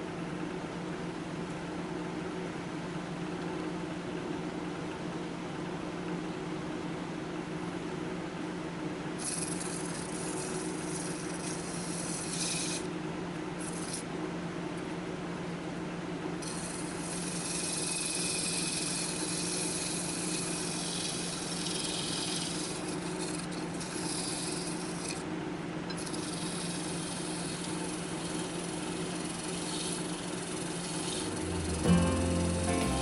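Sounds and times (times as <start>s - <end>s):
wood lathe motor hum: 9.3s - 12.9s, 13.6s - 14.0s, 16.4s - 25.2s, 25.9s - 33.0s
sandpaper rubbing hiss: 26.1s - 33.0s.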